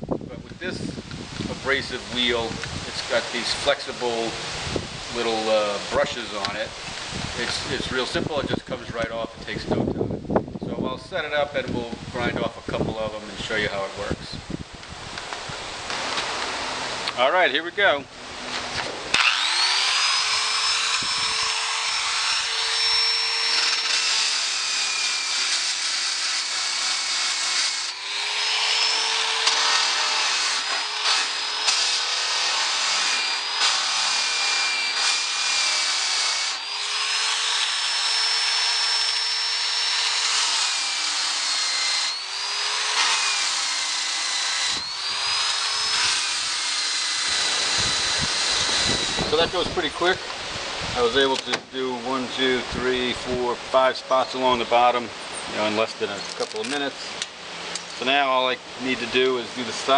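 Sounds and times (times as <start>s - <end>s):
electric drill motor whine: 19.1s - 49.8s.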